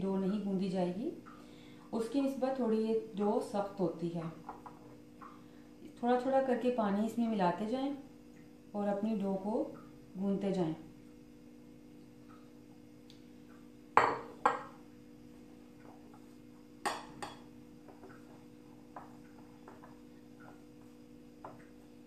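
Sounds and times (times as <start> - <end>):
steady low hum: 0.0 - 22.0
glass clinking on stone countertop: 14.0 - 14.8, 16.8 - 18.0.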